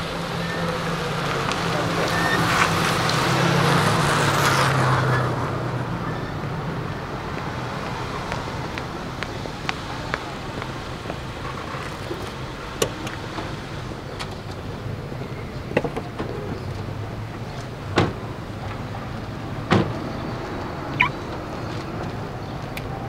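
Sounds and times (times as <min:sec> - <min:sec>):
car driving away: 0:00.0 - 0:23.0
street background: 0:00.0 - 0:23.0.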